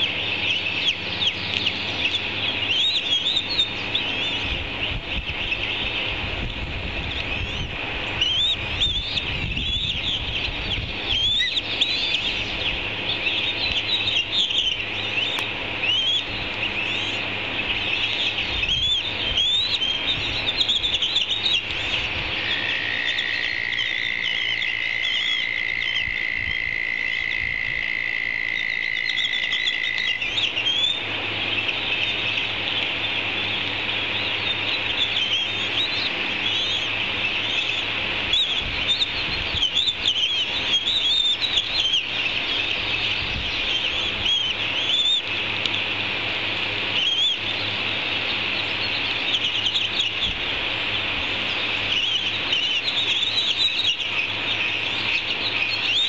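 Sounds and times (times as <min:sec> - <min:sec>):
high-pitched bird chirping: 0:00.0 - 0:04.5, 0:08.2 - 0:12.4, 0:17.8 - 0:27.5, 0:34.3 - 0:42.1.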